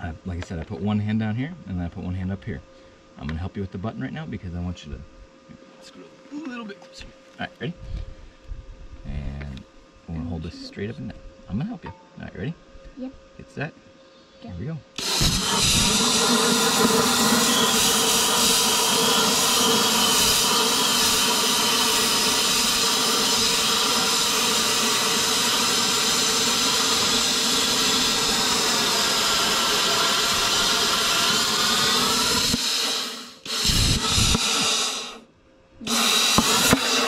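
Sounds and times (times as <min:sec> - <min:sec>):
plasma cutter hissing: 0:15.0 - 0:35.2, 0:35.8 - 0:37.0.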